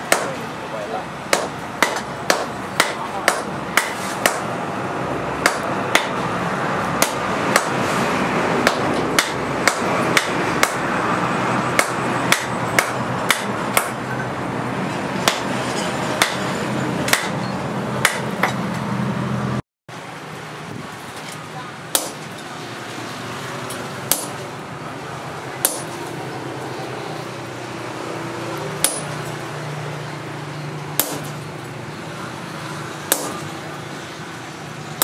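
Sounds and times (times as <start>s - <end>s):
hammer striking metal anvil: 0.1s - 0.4s, 1.3s - 4.5s, 5.4s - 6.2s, 7.0s - 7.8s, 8.6s - 10.8s, 11.8s - 14.2s, 15.2s - 15.5s, 16.2s - 16.5s, 17.1s - 18.6s, 21.9s - 22.2s, 23.7s - 24.4s, 25.6s - 26.0s, 28.8s - 29.3s, 31.0s - 31.4s, 33.1s - 33.5s.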